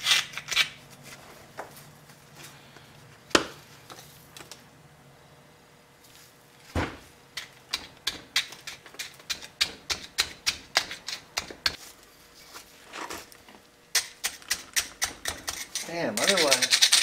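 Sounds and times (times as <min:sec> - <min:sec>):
screwdriver scraping sand off metal: 0:15.4 - 0:17.0.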